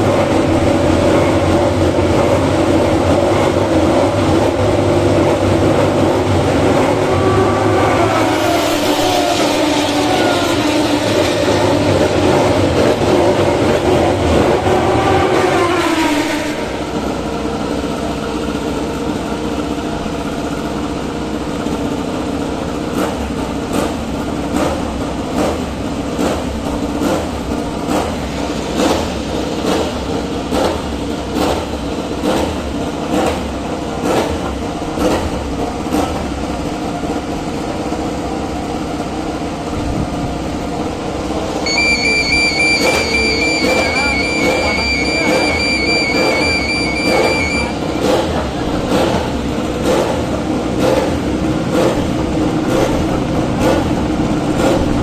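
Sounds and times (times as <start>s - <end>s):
steady engine hum: 0.0s - 55.0s
racing motorcycle passing: 5.8s - 17.1s, 41.2s - 53.9s
high steady tone: 41.6s - 48.0s.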